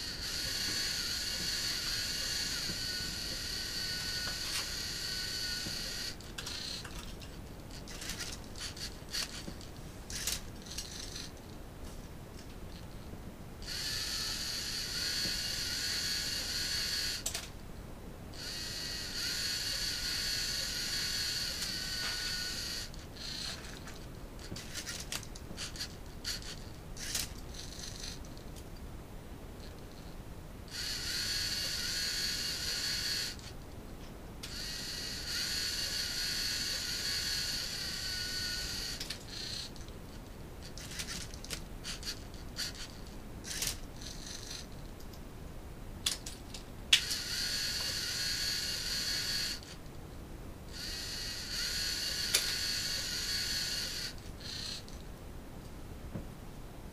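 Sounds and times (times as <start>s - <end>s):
servo motors whirring: 0.0s - 7.0s, 13.7s - 17.2s, 18.4s - 28.2s, 30.7s - 33.5s, 34.5s - 39.7s, 40.8s - 44.7s, 47.0s - 49.7s, 50.7s - 54.8s.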